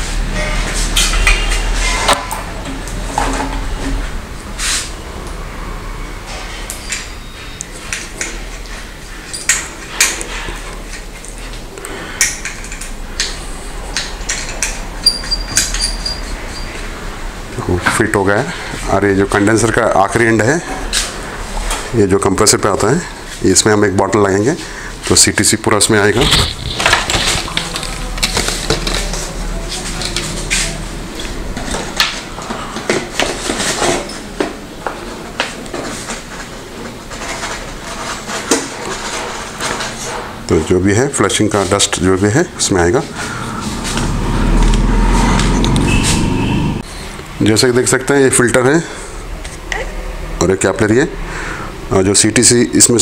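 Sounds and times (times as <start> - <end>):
high metallic ring: 0.3 - 2.0, 15.0 - 16.8
steady low hum: 42.5 - 47.4.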